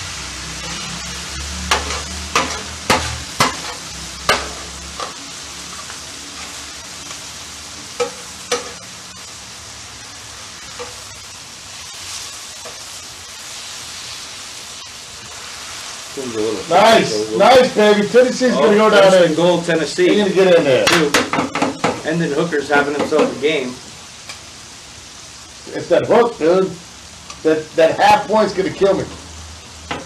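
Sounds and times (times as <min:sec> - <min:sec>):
food sizzling on a griddle: 0:00.0 - 0:30.0
metal spatula clinking and scraping: 0:01.7 - 0:06.5, 0:08.0 - 0:08.8.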